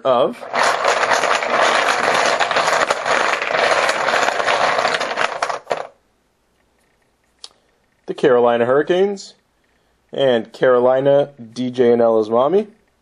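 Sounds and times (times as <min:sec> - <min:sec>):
poker chips clattering in a bucket: 0:00.4 - 0:06.0.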